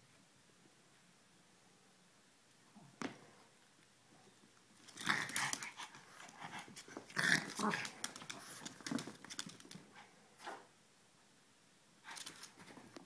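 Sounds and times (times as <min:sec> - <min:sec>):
dogs scuffling: 0:04.8 - 0:10.0
dogs growling: 0:04.9 - 0:08.6.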